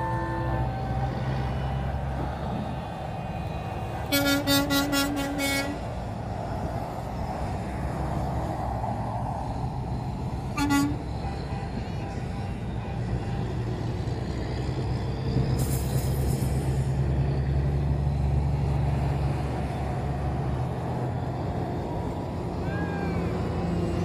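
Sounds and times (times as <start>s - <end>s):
trucks driving past: 0.0s - 24.0s
truck horn short toots: 4.1s - 5.8s, 10.5s - 13.6s.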